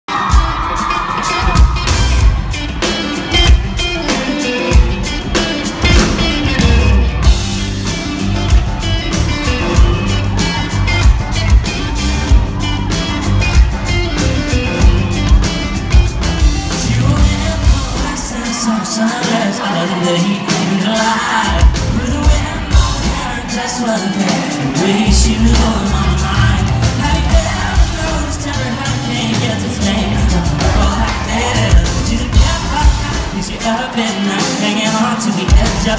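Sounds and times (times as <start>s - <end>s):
drums: 0.0s - 35.9s
bass guitar: 0.1s - 18.6s, 21.2s - 35.9s
live band playing country rock: 0.1s - 35.9s
person singing: 9.3s - 35.9s.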